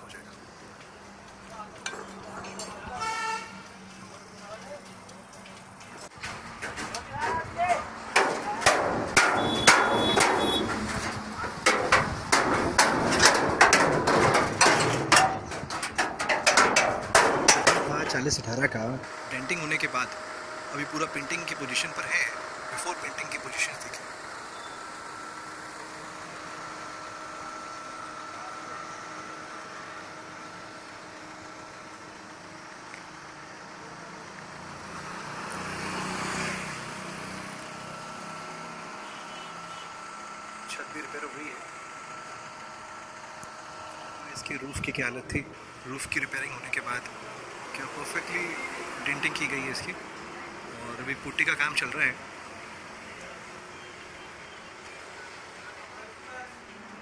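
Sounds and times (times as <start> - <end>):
vehicle engine passing by: 32.8 - 40.7.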